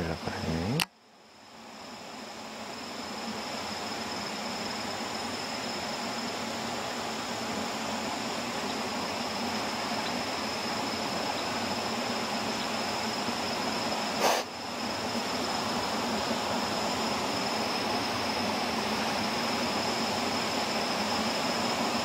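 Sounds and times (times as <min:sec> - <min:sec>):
high-pitched insect drone: 0:00.0 - 0:22.0
outdoor background hiss: 0:00.0 - 0:22.0
brief sharp noise: 0:14.2 - 0:14.5.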